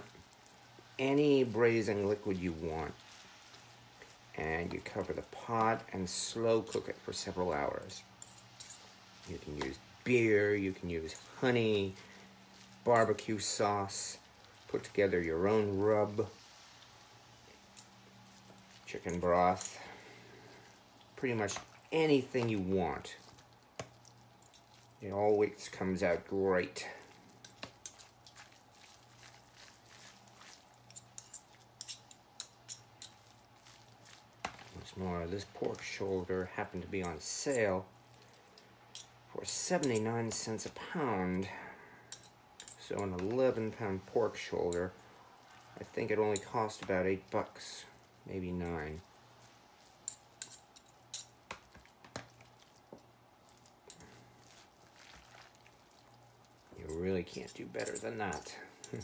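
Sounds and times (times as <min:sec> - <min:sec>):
fork shredding meat: 0:00.0 - 0:40.7, 0:42.6 - 0:59.0
fork tines clicking on pot: 0:30.8 - 0:33.2, 0:50.0 - 0:51.4.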